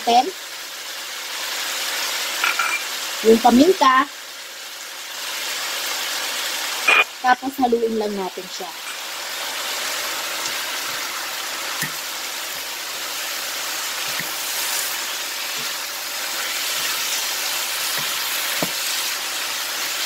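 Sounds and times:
food sizzling in frying pan: 0:00.0 - 0:20.0
wooden spatula knocking pan: 0:17.9 - 0:18.8.

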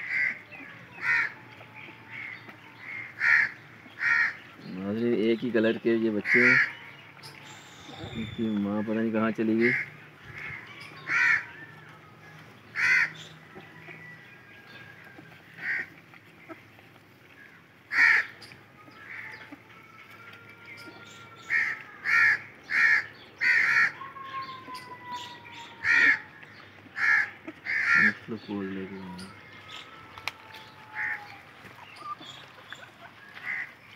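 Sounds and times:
crow cawing: 0:00.0 - 0:00.4, 0:01.0 - 0:01.4, 0:02.1 - 0:04.4, 0:06.2 - 0:06.8, 0:09.6 - 0:11.6, 0:12.8 - 0:13.3, 0:15.6 - 0:15.9, 0:17.9 - 0:18.3, 0:19.0 - 0:19.4, 0:21.4 - 0:26.3, 0:27.0 - 0:28.2, 0:30.8 - 0:31.3, 0:33.4 - 0:33.7.

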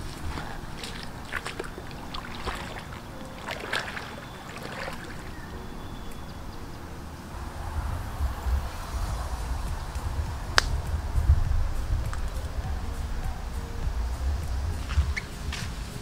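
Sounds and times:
faint outdoor background: 0:00.0 - 0:16.0
low rumble: 0:05.1 - 0:16.0.

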